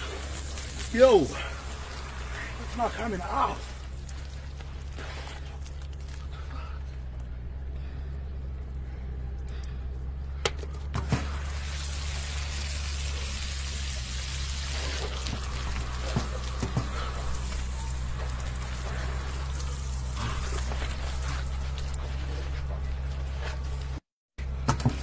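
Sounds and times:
shower water splashing: 0.0 - 6.2, 11.0 - 21.7
steady low hum: 0.0 - 24.6.

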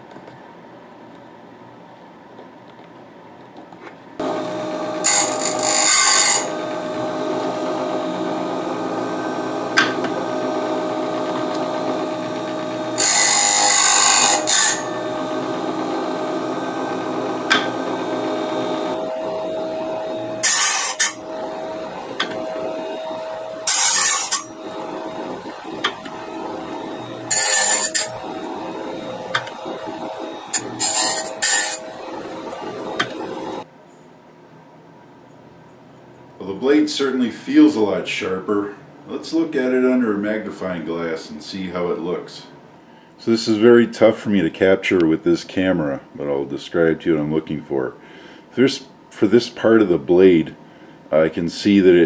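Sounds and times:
sharpener motor humming: 4.2 - 33.7
wheel grinding steel teeth: 4.2 - 33.7.

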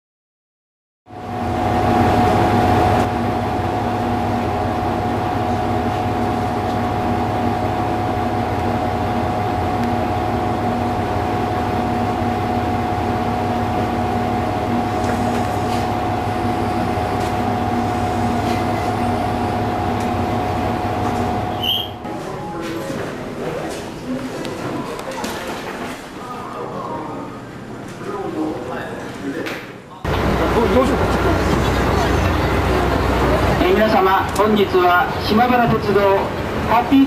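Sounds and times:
constant whine: 1.1 - 22.1
diesel engine idling: 3.2 - 21.8, 30.1 - 37.0.

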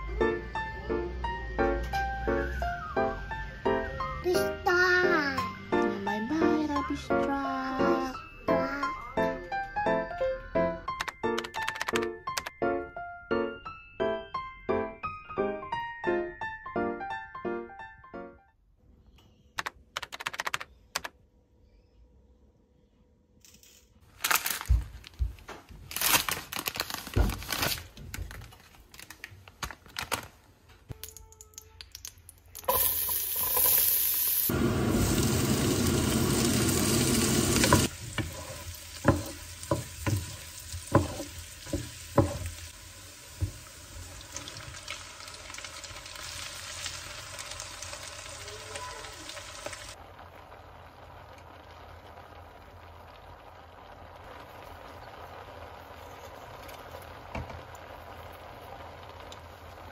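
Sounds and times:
meat sizzling in a pot: 32.6 - 59.9
wooden spatula scraping pot: 37.7 - 42.5.

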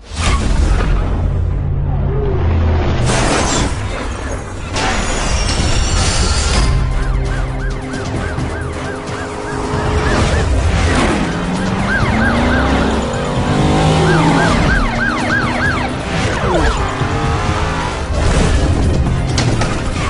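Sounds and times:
background music: 3.0 - 20.0
police siren yelping: 6.8 - 17.3
car engine: 6.8 - 20.0.

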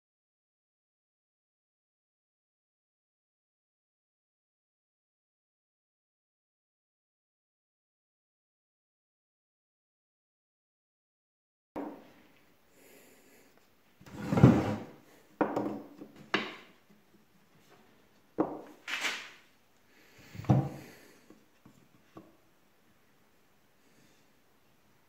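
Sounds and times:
wood scraping: 14.0 - 16.7
wooden knocks: 15.4 - 16.7, 18.4 - 18.7.

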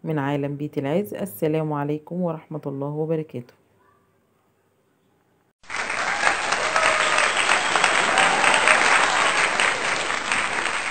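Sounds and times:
crowd applauding: 5.6 - 10.9.

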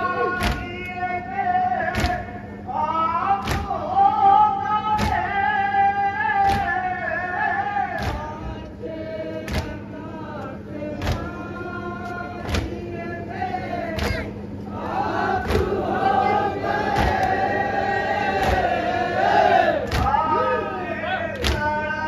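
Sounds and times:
man singing lament through pa: 0.0 - 8.8, 20.0 - 22.0
voices singing along: 0.0 - 22.0.

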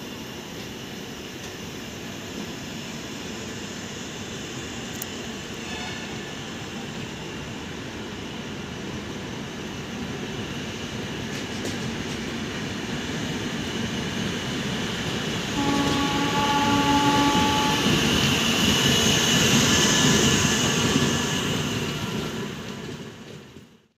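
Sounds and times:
train coaches rumbling on rails: 0.0 - 23.9
locomotive horn blast: 15.5 - 18.6.

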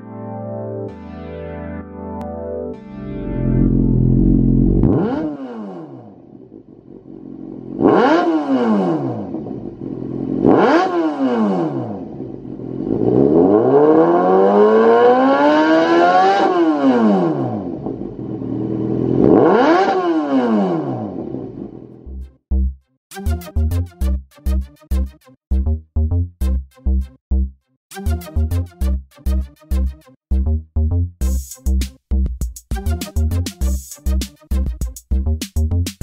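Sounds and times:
motorcycle engine revving: 3.3 - 21.8.

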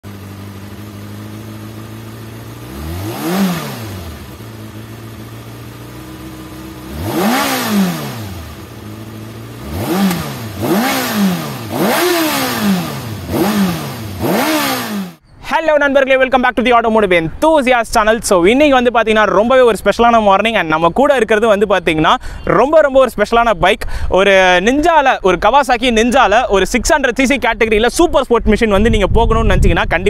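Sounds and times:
motorcycle engine idling: 0.0 - 15.2
motorcycle engine revving: 0.0 - 15.2.

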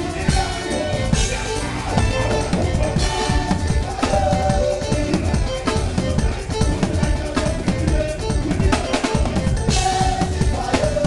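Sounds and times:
band playing: 0.0 - 11.0.

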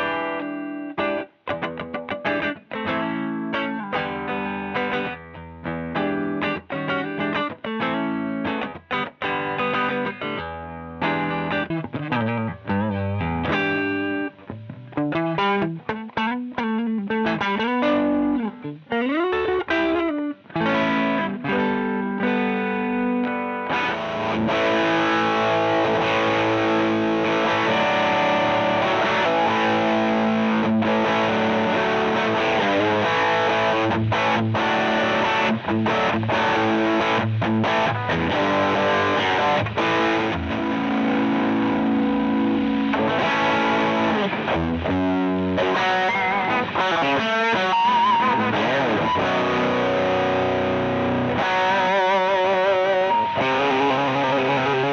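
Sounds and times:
distorted electric guitar: 0.0 - 54.9.

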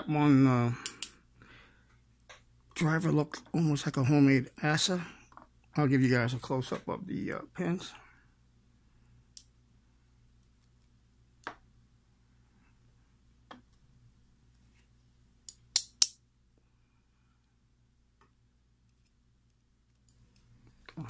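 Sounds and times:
small metal clicks of lock pins: 0.8 - 1.2.

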